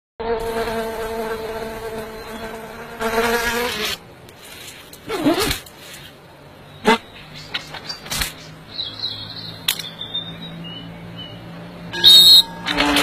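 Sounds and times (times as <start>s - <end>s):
short wavering squeak: 11.9s - 13.0s.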